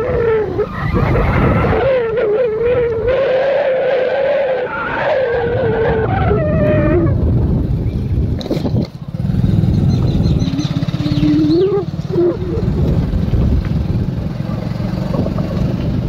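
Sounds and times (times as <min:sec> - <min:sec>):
wind rumble on microphone: 0:00.0 - 0:16.0
vehicle engine running: 0:06.8 - 0:16.0.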